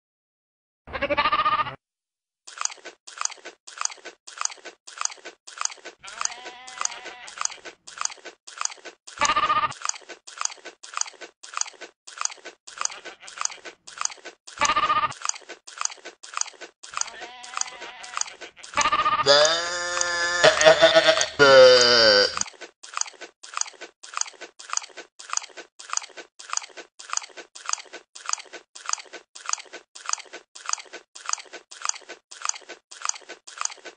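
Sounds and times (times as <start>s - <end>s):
goat bleating loudly: 0.9s - 1.8s, 6.0s - 7.4s, 9.2s - 9.7s, 12.9s - 13.5s, 14.6s - 15.1s, 17.0s - 22.4s
goat chewing with crunch: 2.5s - 33.9s.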